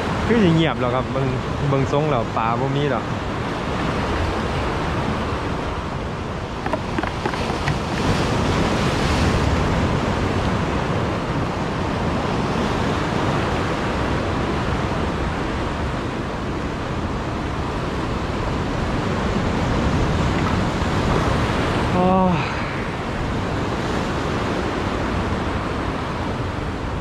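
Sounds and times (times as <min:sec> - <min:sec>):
surf breaking against concrete blocks: 0:06.7 - 0:07.9.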